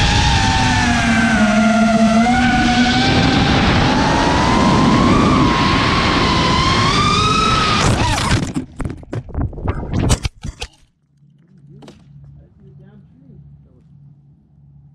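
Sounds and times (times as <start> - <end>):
drone motors whining: 0.0 - 8.6
drone crashing and tumbling: 0.0 - 10.8.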